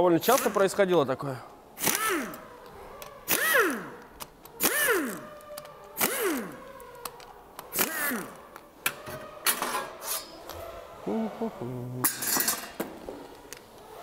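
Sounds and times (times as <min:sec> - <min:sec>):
pneumatic wrench whining: 0:01.8 - 0:10.6.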